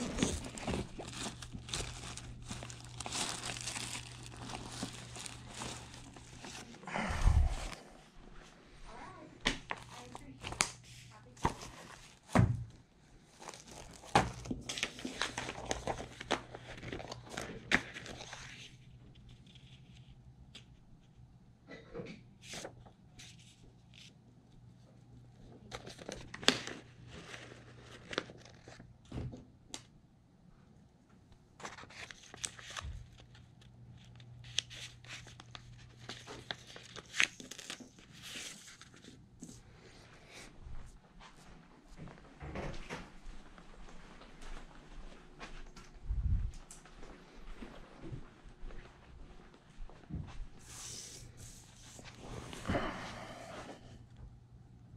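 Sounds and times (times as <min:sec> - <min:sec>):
paper and plastic wrapper rustling: 0:00.0 - 0:07.9, 0:08.9 - 0:12.5, 0:13.2 - 0:20.7, 0:25.5 - 0:28.9, 0:31.6 - 0:39.7.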